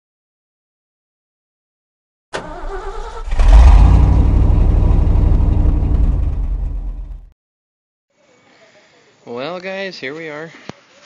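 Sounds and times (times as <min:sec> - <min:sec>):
truck engine starting and rumbling: 0:02.3 - 0:07.3.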